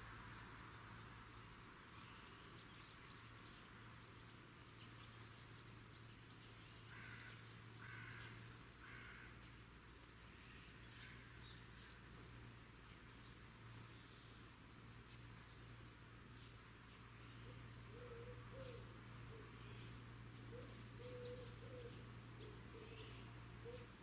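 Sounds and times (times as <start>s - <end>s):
low steady hum: 0.0s - 24.0s
bird calls: 16.9s - 24.0s.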